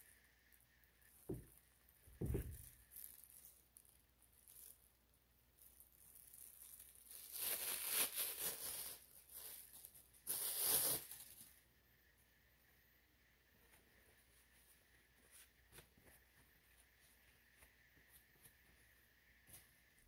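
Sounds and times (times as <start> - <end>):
rustling crinkling: 1.1 - 4.9, 5.6 - 11.6.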